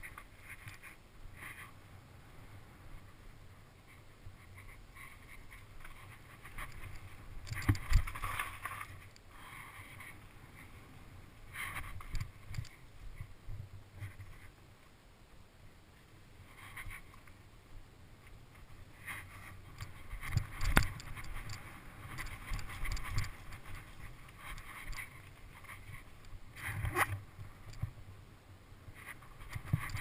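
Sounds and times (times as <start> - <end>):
bike rattling: 3.9 - 10.8, 19.0 - 28.0, 29.0 - 30.0.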